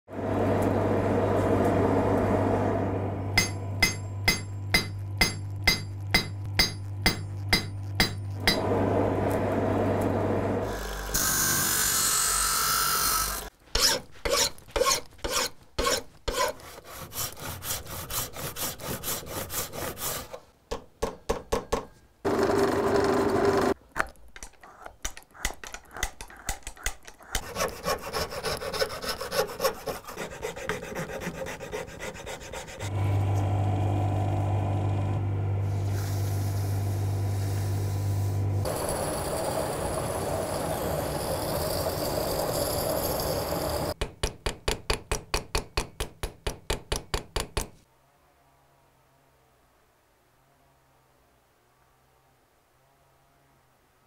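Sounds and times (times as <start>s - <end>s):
hammer strikes on metal: 3.4s - 8.7s, 20.7s - 22.0s, 44.0s - 47.8s
file rasping over wood: 12.8s - 20.4s, 24.6s - 32.9s.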